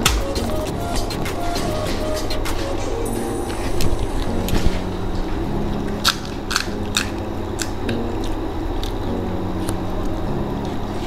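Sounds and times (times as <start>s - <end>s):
crisp shells cracking: 6.0s - 9.0s.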